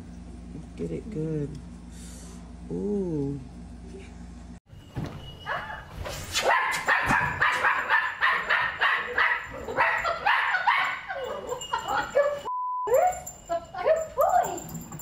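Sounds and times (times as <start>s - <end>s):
puppy yapping: 5.4s - 11.2s.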